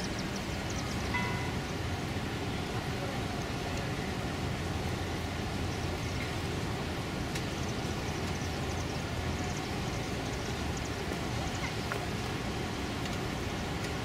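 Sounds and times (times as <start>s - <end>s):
distant ship engine rumble: 0.0s - 14.0s.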